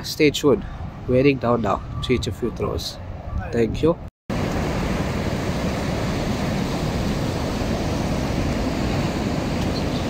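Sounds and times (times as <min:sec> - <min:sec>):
wind on microphone: 0:00.6 - 0:10.0.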